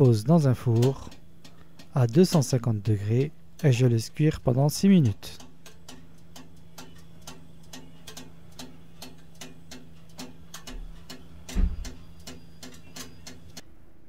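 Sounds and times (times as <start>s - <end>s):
mechanical timer ticking: 0.0s - 13.7s
electric oven humming: 0.0s - 14.0s
dull thump: 11.6s - 11.8s.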